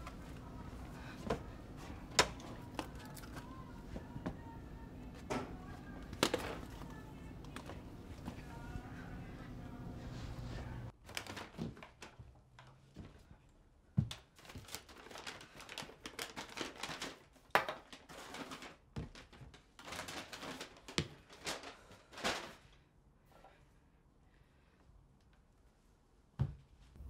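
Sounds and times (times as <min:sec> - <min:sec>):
handling and rustling: 0:14.0 - 0:22.8.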